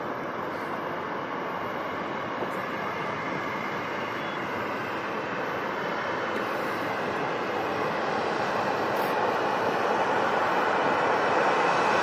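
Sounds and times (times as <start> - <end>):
jet engines rushing: 0.0 - 12.0.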